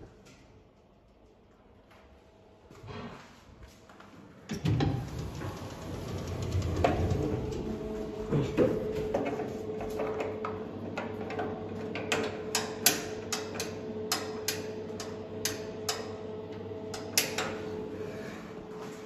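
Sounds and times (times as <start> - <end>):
steady hum: 0.0 - 19.0.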